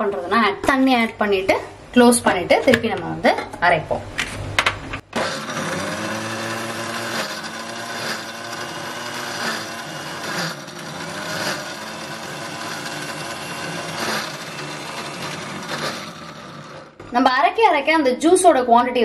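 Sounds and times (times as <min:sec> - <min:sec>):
mixer grinder motor whirring: 0:05.1 - 0:17.1.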